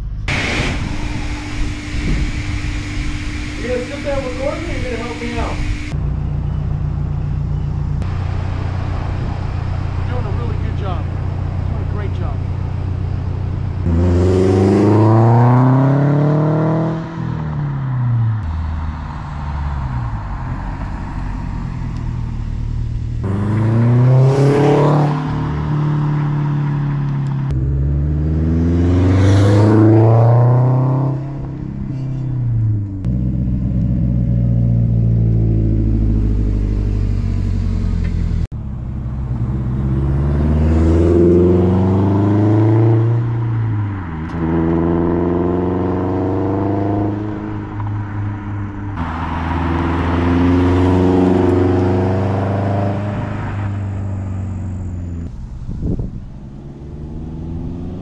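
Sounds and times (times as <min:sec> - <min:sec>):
car engine accelerating past: 0:13.8 - 0:31.6, 0:32.3 - 0:58.0.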